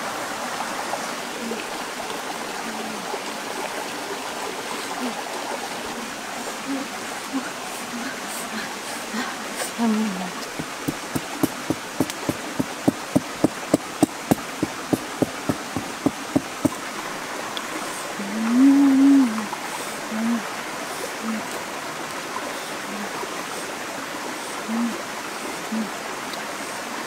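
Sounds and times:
steady rushing hiss: 0:04.6 - 0:27.0
blade chopping a stalk: 0:10.6 - 0:16.8.

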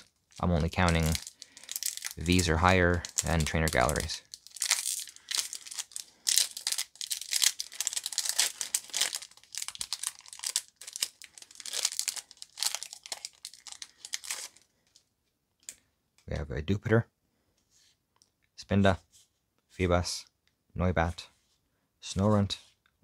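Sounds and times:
foil wrapper crinkling and tearing: 0:00.0 - 0:14.7.

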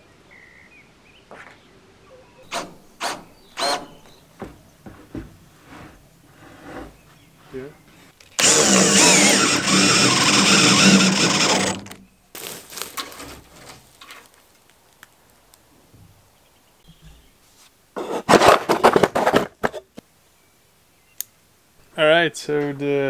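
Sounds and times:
electric drill whining: 0:08.4 - 0:12.0.

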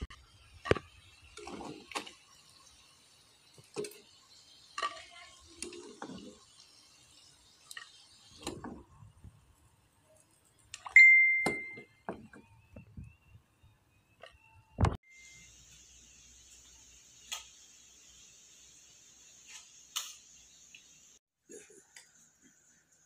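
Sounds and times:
frying oil sizzling: 0:00.0 - 0:12.2, 0:15.1 - 0:21.2
ringing ding: 0:11.0 - 0:12.0.

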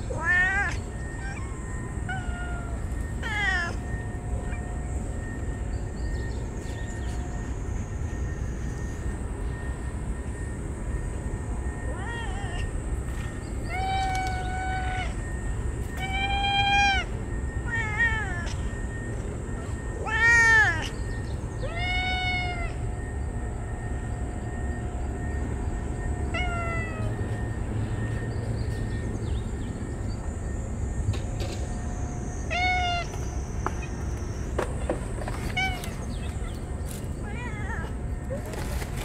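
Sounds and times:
cats meowing: 0:00.0 - 0:05.4, 0:11.7 - 0:23.0, 0:26.3 - 0:27.4, 0:32.4 - 0:34.4, 0:35.2 - 0:39.0.

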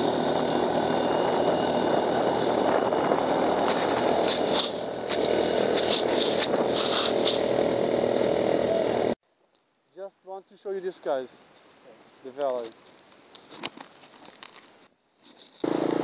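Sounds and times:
buggy engine running: 0:00.0 - 0:09.2, 0:15.6 - 0:16.0.

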